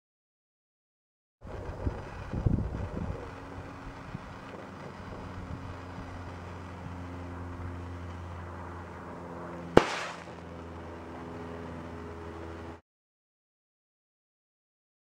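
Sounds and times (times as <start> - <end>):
steady low hum: 1.4 - 12.8
crystals exploding with a bang: 9.8 - 10.4.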